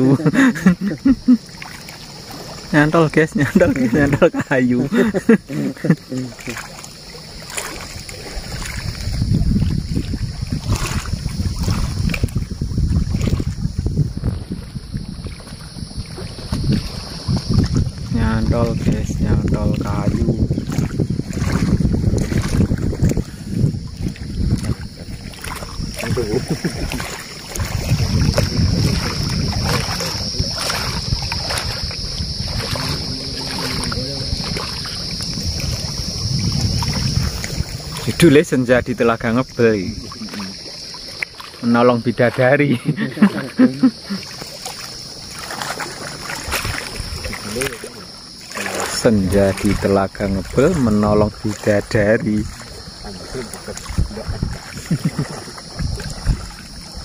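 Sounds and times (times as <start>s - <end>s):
water rippling: 0.0s - 57.0s
wind buffeting microphone: 0.0s - 57.0s
high-pitched hiss: 24.8s - 46.0s.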